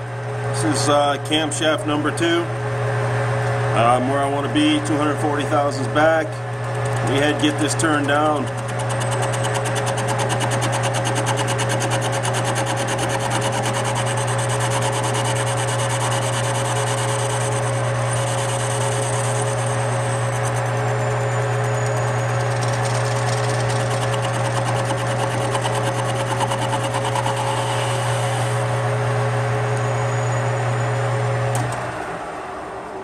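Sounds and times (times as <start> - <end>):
metal lathe running: 3.8 - 28.8.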